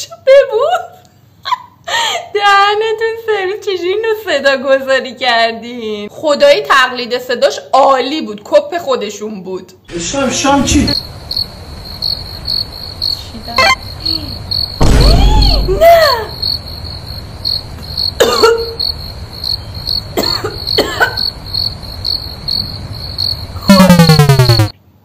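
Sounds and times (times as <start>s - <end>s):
crickets chirping: 9.9s - 24.7s
loud falling tone: 14.8s - 16.4s, 23.6s - 24.7s.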